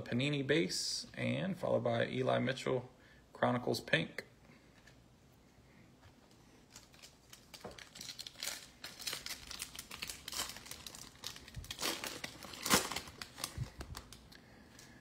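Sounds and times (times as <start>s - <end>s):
foil wrapper crinkling: 6.7s - 14.3s.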